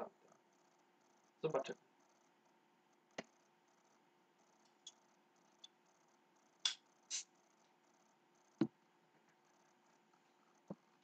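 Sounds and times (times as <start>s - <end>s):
bottle hiss: 7.1s - 7.3s.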